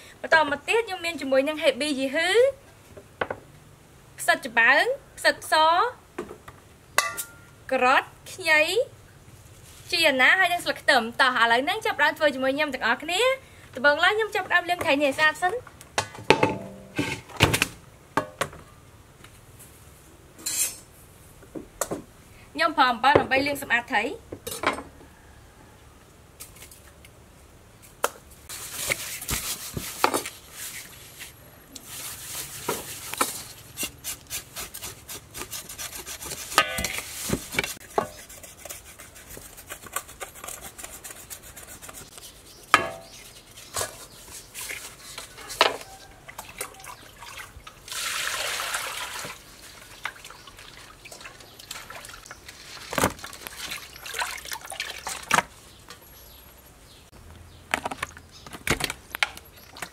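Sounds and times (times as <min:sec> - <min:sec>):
fish washed by hand splashing: 0:45.9 - 0:52.2, 0:53.2 - 0:55.5.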